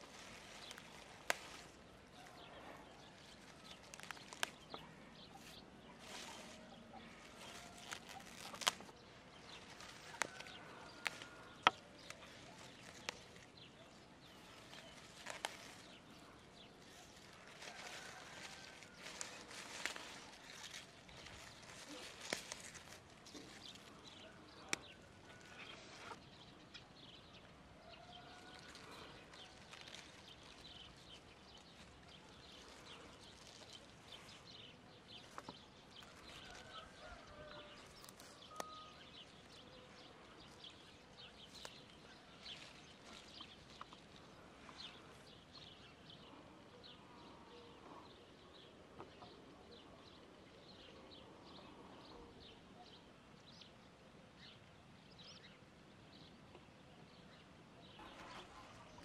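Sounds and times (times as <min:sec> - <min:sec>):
leaves rustling as picked by hand: 0:00.0 - 0:26.6, 0:27.8 - 0:46.6, 0:58.0 - 0:59.0
faint bird calls: 0:27.8 - 0:53.1.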